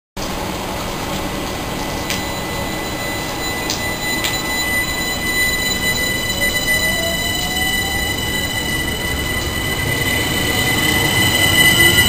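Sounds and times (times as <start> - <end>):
electric train whine: 0.2 - 12.0
wheel and rail noise: 0.2 - 12.0.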